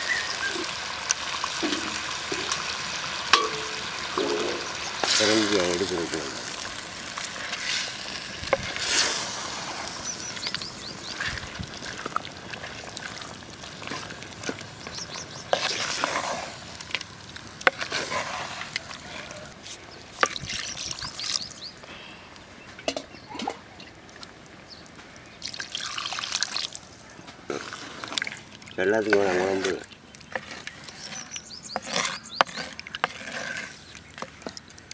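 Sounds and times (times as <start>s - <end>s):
wooden spatula stirring meat: 0.1s - 21.5s, 27.3s - 34.9s
water pouring into pot: 25.4s - 26.9s.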